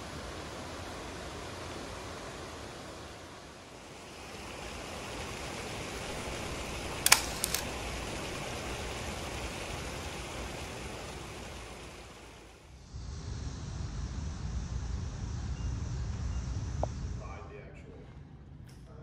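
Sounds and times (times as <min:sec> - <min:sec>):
fountain water splashing: 0:00.0 - 0:12.7
sharp clicks: 0:06.1 - 0:08.9.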